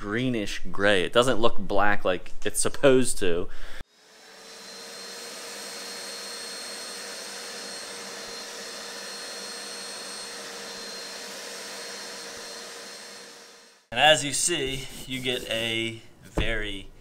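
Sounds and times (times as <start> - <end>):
carpet extractor suction whooshing: 4.1 - 13.9.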